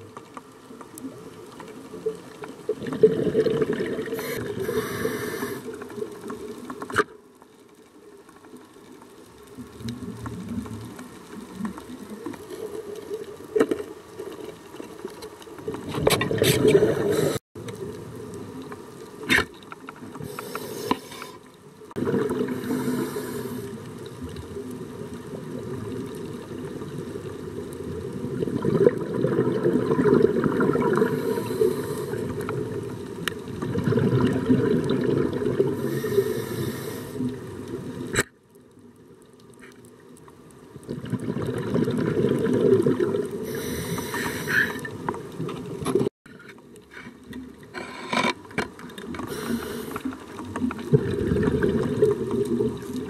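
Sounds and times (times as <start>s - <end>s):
underwater rushing water: 0.0s - 53.0s
short bursts of hiss: 4.2s - 5.7s.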